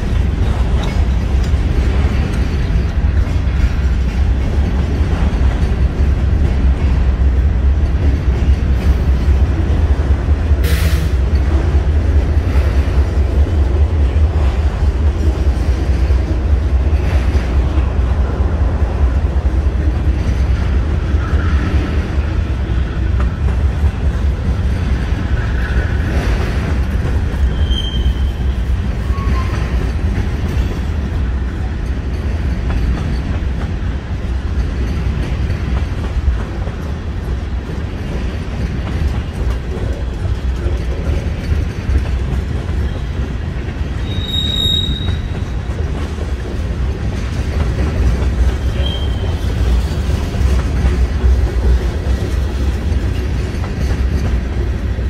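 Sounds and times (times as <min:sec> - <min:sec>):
freight cars rumbling on rails: 0:00.0 - 0:55.0
faint wheel squeals: 0:27.5 - 0:28.5, 0:44.0 - 0:45.4, 0:48.6 - 0:49.5.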